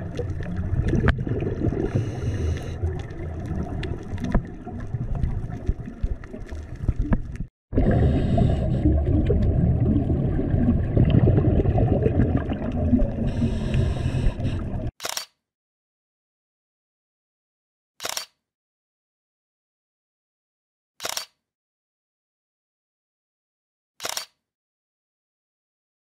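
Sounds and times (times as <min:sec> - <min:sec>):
exhaled bubbles gurgling: 0:00.0 - 0:14.9
breath hissing through regulator: 0:01.8 - 0:02.9, 0:07.8 - 0:09.0, 0:13.2 - 0:14.9.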